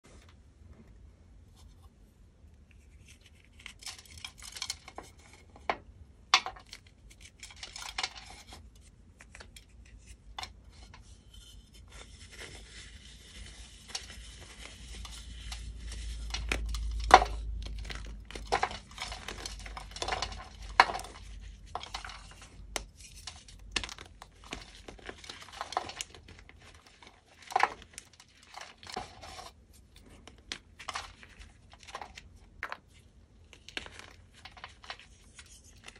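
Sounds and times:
chalk blocks cracking and crunching: 0:02.6 - 0:35.9
powdery crumbling: 0:12.3 - 0:35.9.

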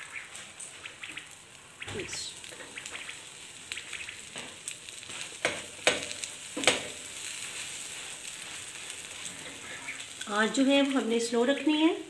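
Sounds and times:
egg and oil sizzling in a pan: 0:00.0 - 0:12.0
spatula tapping a pan: 0:05.4 - 0:07.0.

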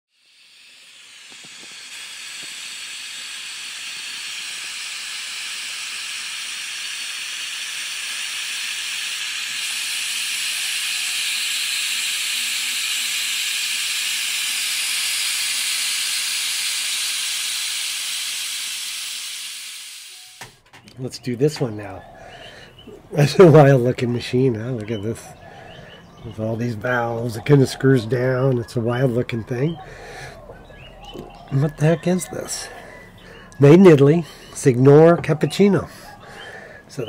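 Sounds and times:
steam hissing: 0:00.1 - 0:20.6.

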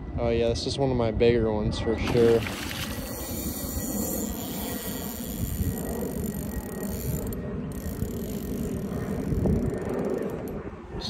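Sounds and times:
reel drag clicking rapidly: 0:02.0 - 0:10.6.

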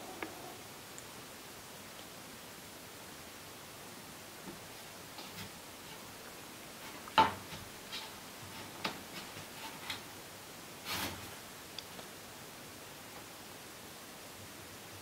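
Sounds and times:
cat scuffling: 0:04.5 - 0:10.2, 0:10.8 - 0:11.4
cat paws tapping and scratching door: 0:06.8 - 0:10.1.

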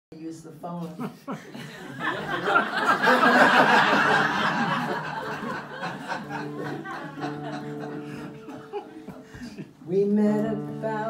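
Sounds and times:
audience laughing: 0:01.0 - 0:09.8.

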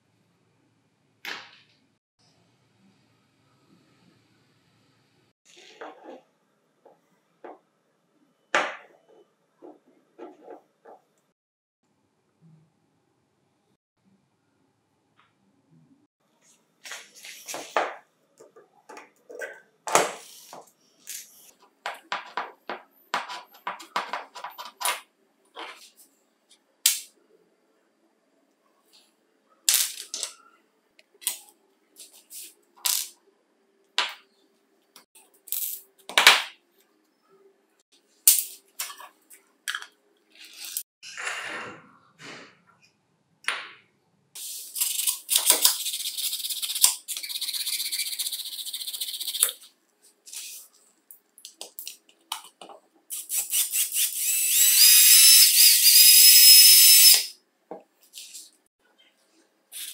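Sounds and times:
electric motor whine: 0:54.2 - 0:57.2.

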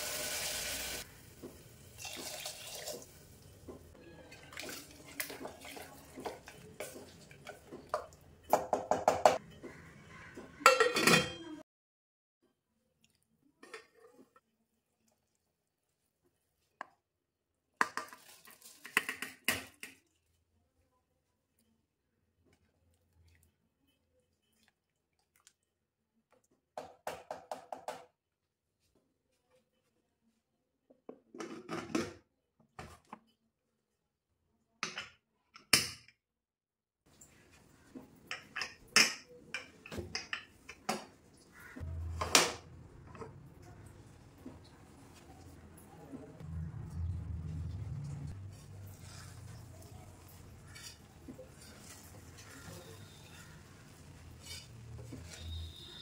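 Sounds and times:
spoon scraping steel plate: 0:48.5 - 0:56.0.

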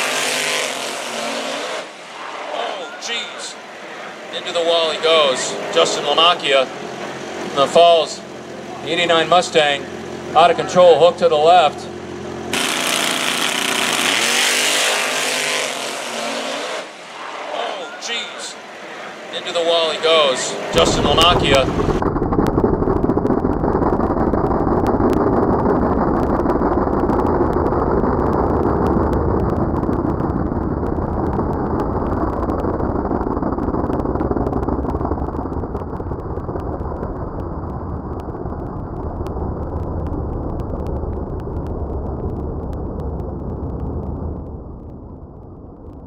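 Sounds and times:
drag car engines at full throttle: 0:00.0 - 0:22.6.

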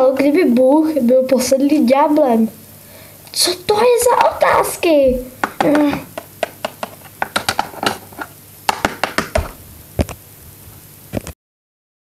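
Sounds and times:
plastic toy knocks and clicks: 0:04.0 - 0:10.2.

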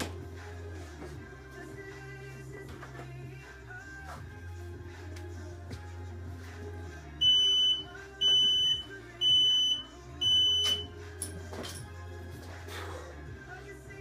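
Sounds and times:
background music with bass: 0:00.0 - 0:14.0
high electronic beeps: 0:07.2 - 0:10.9.

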